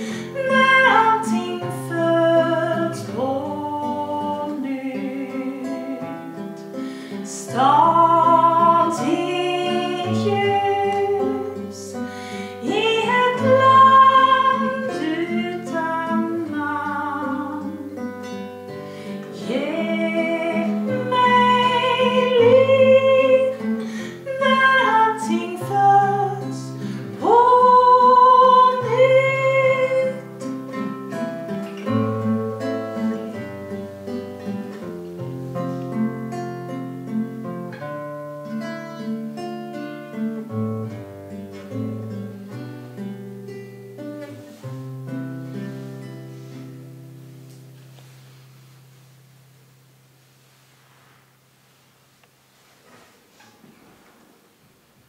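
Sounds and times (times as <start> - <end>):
woman singing slow song: 0.0 - 33.7
strummed acoustic guitar: 0.0 - 50.0.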